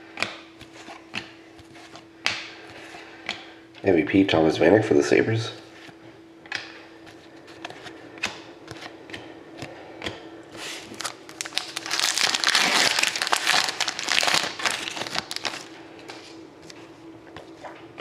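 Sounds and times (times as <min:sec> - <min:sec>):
wrapper crinkling: 0:10.8 - 0:15.8.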